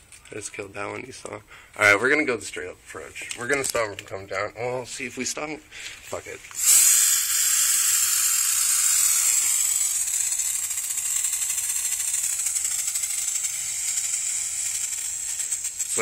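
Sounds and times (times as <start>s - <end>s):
aerosol can spraying: 6.6s - 16.0s.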